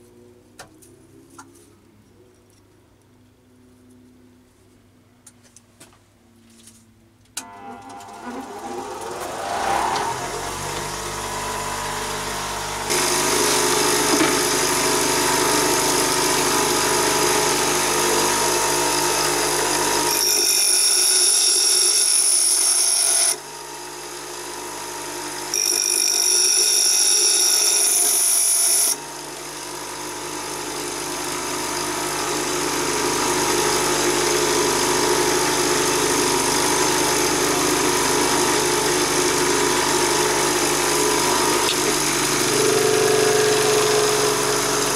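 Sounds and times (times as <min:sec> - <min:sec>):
bench grinder motor hum: 0:07.4 - 0:44.9.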